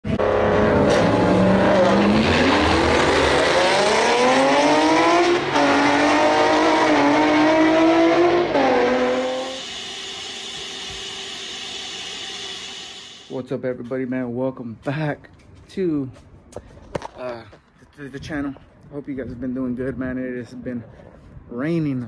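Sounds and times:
car engine accelerating: 0:00.0 - 0:12.2.

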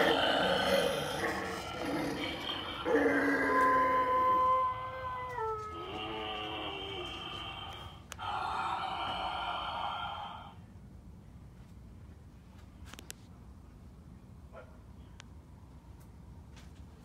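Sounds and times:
eerie falling wail: 0:00.0 - 0:10.4
harsh noisy cry: 0:00.0 - 0:10.6.

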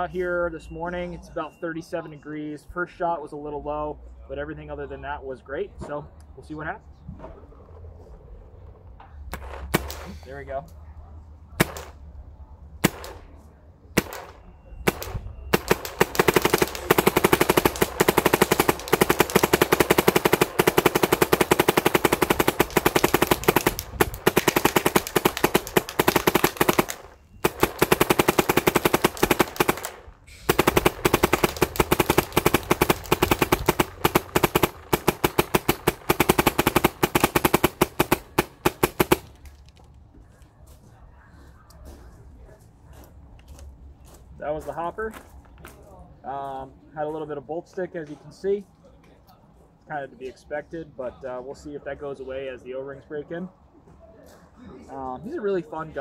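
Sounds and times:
paintball marker firing: 0:09.3 - 0:10.2, 0:11.6 - 0:12.0, 0:12.8 - 0:13.4, 0:14.0 - 0:39.7.

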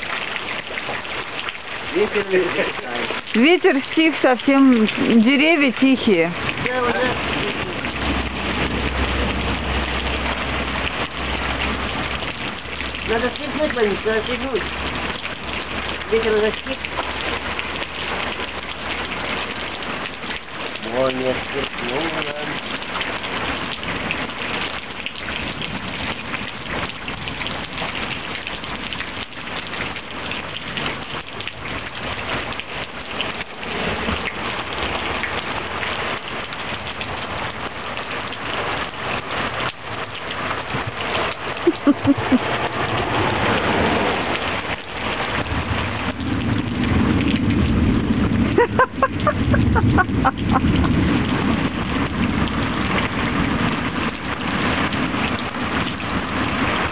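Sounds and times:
heavy rain on umbrella: 0:00.0 - 0:56.9
thunder rumble: 0:06.2 - 0:19.2, 0:39.4 - 0:56.9.

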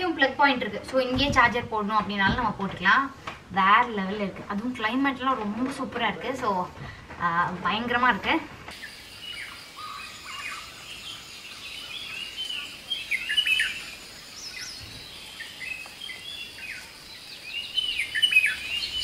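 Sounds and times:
faint steady hiss: 0:00.0 - 0:19.0
birds chirping and calling: 0:08.8 - 0:19.0.

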